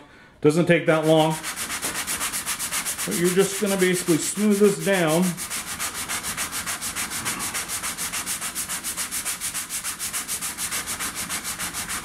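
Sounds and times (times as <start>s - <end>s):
sanding block scrubbing: 0.9s - 12.0s.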